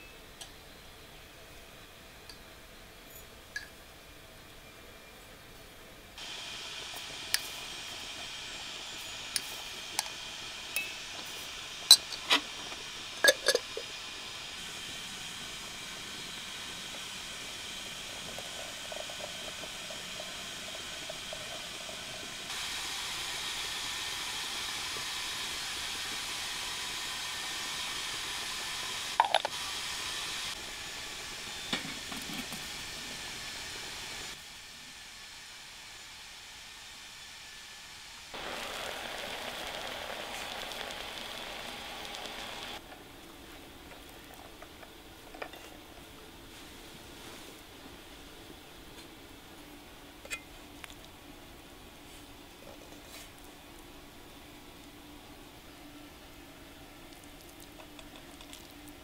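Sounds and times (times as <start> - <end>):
samovar hissing: 6.2 - 37.6, 38.3 - 42.8
water pouring into teapot: 38.4 - 42.8.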